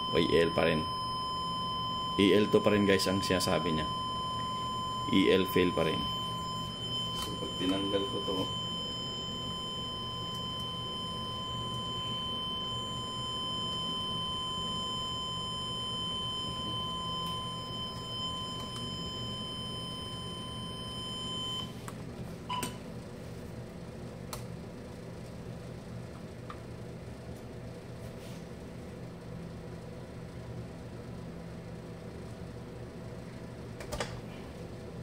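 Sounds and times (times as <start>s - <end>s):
high-pitched alarm tone: 0.0s - 21.7s
short beep: 0.0s - 21.7s.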